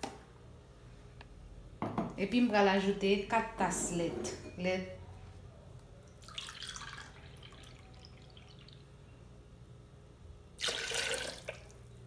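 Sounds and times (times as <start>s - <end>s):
milk pouring into cup: 6.1s - 8.9s, 10.6s - 11.9s.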